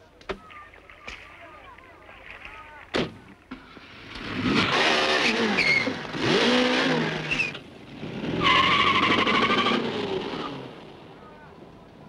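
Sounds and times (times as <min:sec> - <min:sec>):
car engine revving hard: 0:04.1 - 0:11.0
tyre squeal: 0:04.6 - 0:06.1, 0:06.7 - 0:07.6, 0:08.4 - 0:10.5.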